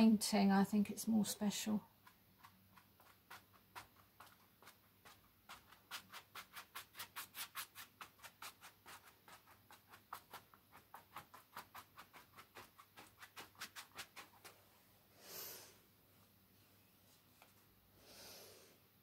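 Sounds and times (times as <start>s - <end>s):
brush scratching on canvas: 1.4s - 14.6s.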